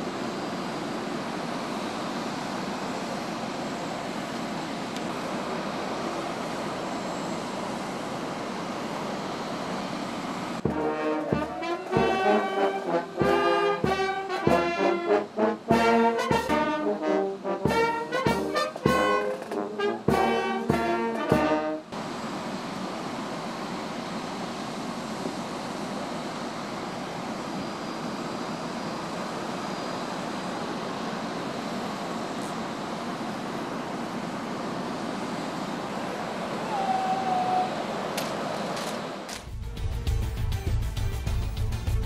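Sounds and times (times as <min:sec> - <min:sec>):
military brass band playing: 0:10.6 - 0:21.9.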